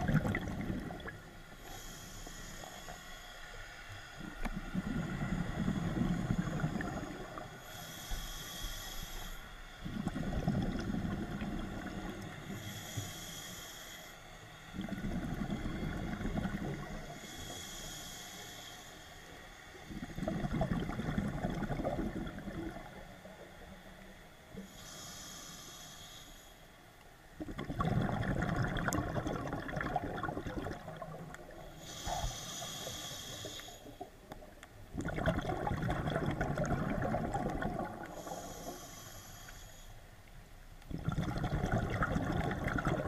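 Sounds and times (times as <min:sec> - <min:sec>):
bubbling underwater exhalations: 0:00.0 - 0:01.2, 0:09.9 - 0:12.1, 0:14.8 - 0:17.0, 0:19.9 - 0:23.0, 0:27.4 - 0:31.6, 0:34.9 - 0:38.4, 0:40.9 - 0:43.0
hissing regulator inhalations: 0:01.5 - 0:09.9, 0:11.2 - 0:14.9, 0:16.8 - 0:19.8, 0:22.9 - 0:26.9, 0:31.6 - 0:34.2, 0:38.0 - 0:40.2.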